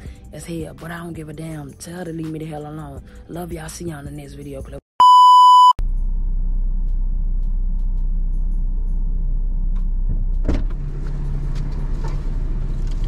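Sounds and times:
test-card tone: 5.0s - 5.8s.

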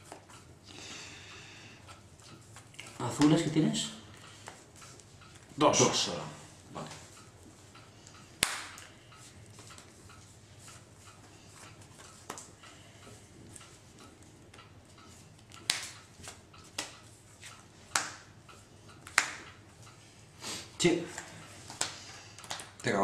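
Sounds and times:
cards tapping and clicking: 12.0s - 12.5s, 15.6s - 18.2s, 19.0s - 19.5s, 21.1s - 22.8s.

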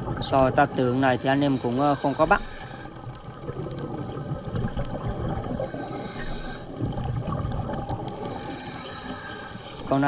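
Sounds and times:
bubbling: 0.0s - 10.0s
low underwater rumble: 2.7s - 9.9s
faint sharp clicks: 3.0s - 3.9s.

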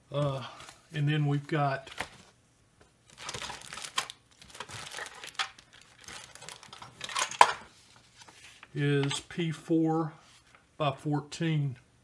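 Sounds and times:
paper rustling and crinkling: 1.8s - 2.4s, 3.1s - 8.8s.

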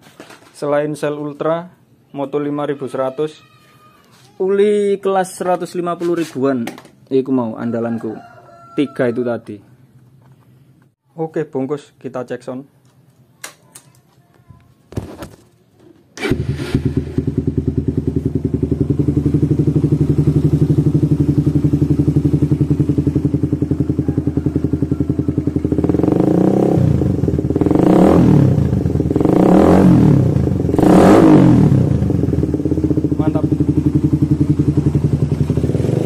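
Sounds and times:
engine revving: 16.2s - 18.3s, 25.6s - 36.0s
motorcycle engine idling: 16.4s - 27.8s, 31.6s - 36.0s.

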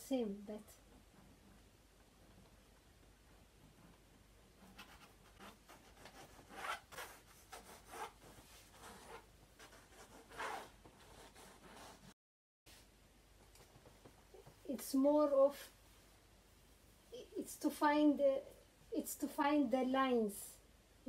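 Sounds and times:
drawing tool scratching on canvas: 4.6s - 12.2s.

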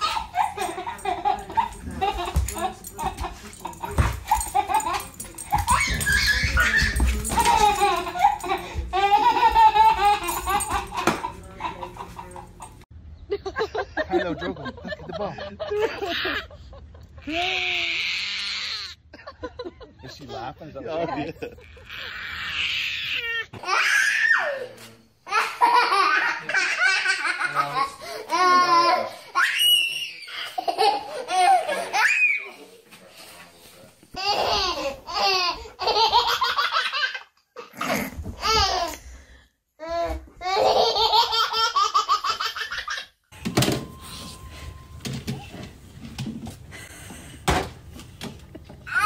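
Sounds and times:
baby laughing and squealing: 0.0s - 2.4s, 4.2s - 11.1s, 21.6s - 24.6s
dog crying in play: 3.8s - 10.8s
toddler laughing hard: 3.8s - 12.4s.

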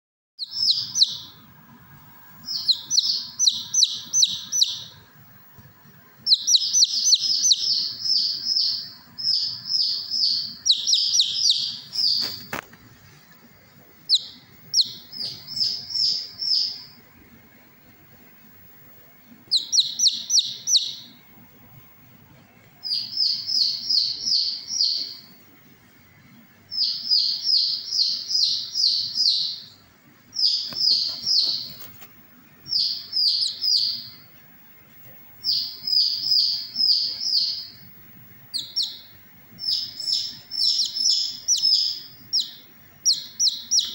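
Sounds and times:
chick peeping loudly: 0.4s - 1.4s, 2.4s - 5.1s, 6.2s - 12.7s, 14.0s - 17.0s, 19.5s - 21.2s, 22.8s - 25.3s, 26.7s - 31.9s, 32.7s - 34.3s, 35.4s - 37.9s, 38.5s - 43.9s.

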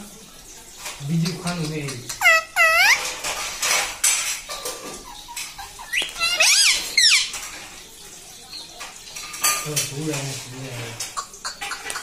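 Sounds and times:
parakeet shrill calls: 2.1s - 3.1s, 5.8s - 7.4s.

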